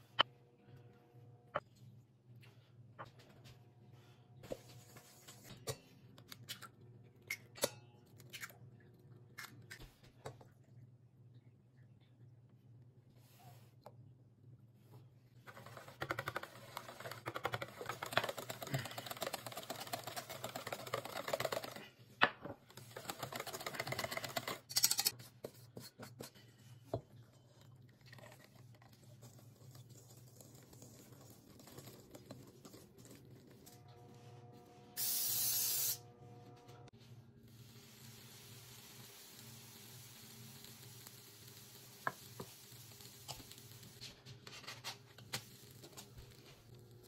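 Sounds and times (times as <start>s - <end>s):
wooden spoon stirring in metal bowl: 15.4s - 22.0s, 22.7s - 33.6s.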